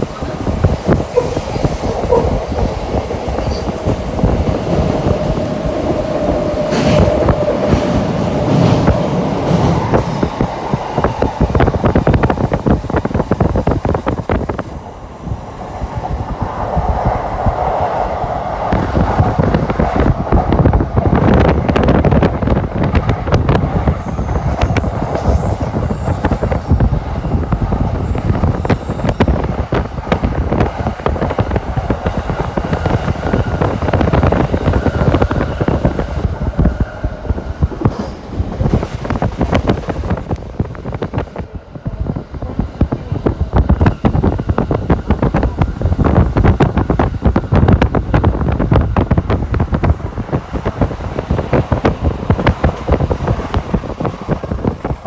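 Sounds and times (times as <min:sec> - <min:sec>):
train wheels rolling on rail: 0:00.0 - 0:55.0.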